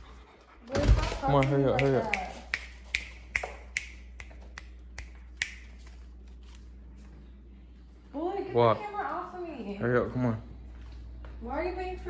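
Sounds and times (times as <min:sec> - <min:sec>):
fingers snapping: 0:01.4 - 0:06.0.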